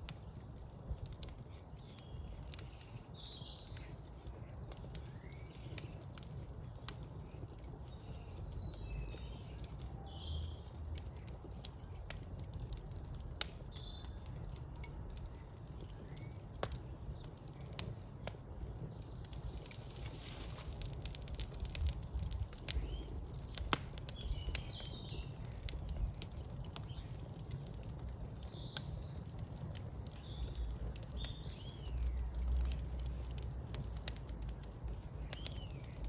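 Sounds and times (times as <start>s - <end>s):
fire crackling and popping: 0.0s - 36.0s
birds chirping: 1.8s - 17.8s.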